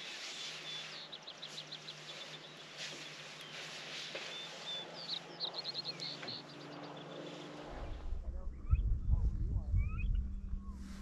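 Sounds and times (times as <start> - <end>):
faint low hum: 7.5 - 11.0.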